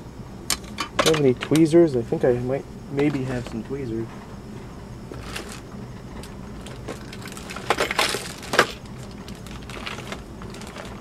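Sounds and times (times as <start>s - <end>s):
steady low hum: 0.0s - 11.0s
small hard objects clattering: 5.1s - 5.6s, 6.2s - 11.0s.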